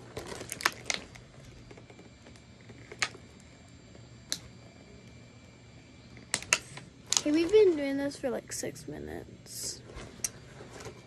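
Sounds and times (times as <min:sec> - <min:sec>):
plastic packaging crackling: 0:00.0 - 0:02.0.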